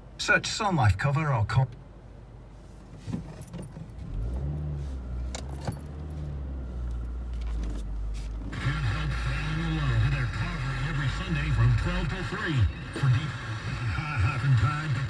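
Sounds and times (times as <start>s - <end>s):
car engine idling: 0.0s - 15.0s.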